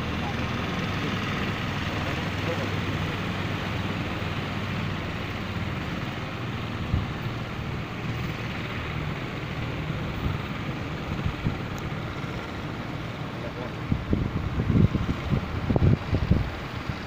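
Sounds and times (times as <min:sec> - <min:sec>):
low engine drone: 0:00.0 - 0:17.0
wind buffeting microphone: 0:03.0 - 0:12.9, 0:13.7 - 0:17.0.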